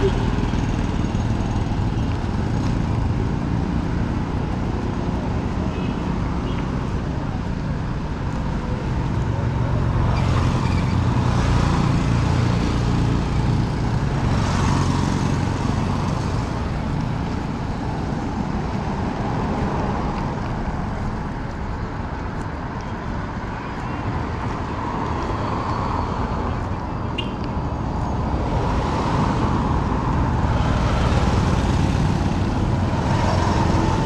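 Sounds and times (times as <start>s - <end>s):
low rumble of engines: 0.0s - 34.0s
vehicles passing: 0.0s - 34.0s.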